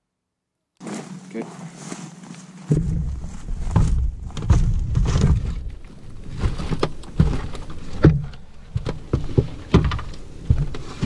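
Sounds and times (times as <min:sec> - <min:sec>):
knocks and thumps in rubber boat: 0:02.6 - 0:11.0.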